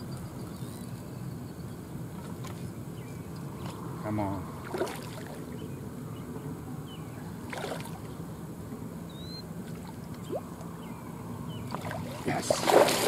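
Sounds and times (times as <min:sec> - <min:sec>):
steady low hum: 0:00.0 - 0:13.0
fish splashing at surface: 0:11.8 - 0:13.0.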